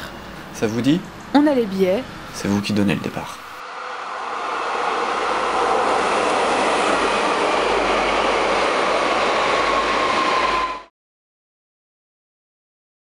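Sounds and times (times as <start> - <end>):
train wheel and rail noise: 0.0 - 10.9
high whine: 2.2 - 10.9.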